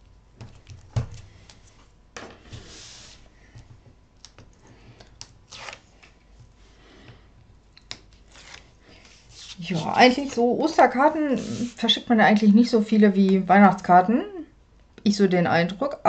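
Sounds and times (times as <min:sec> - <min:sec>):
paper rustling: 0:08.1 - 0:11.8.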